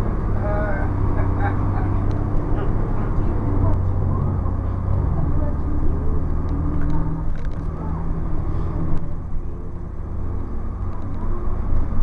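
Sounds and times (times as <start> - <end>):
bus diesel engine drone: 0.0 - 12.0
light clicks and rattles: 6.2 - 7.8.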